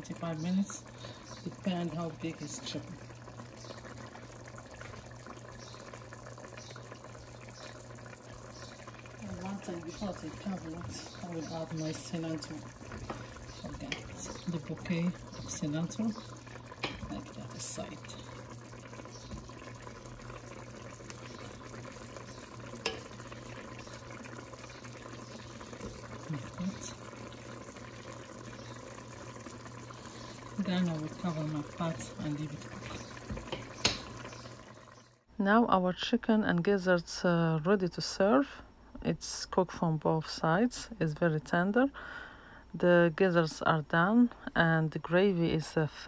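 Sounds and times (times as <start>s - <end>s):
stew bubbling in a pot: 0.0s - 46.0s
wooden spoon knocking on pot: 33.2s - 34.2s.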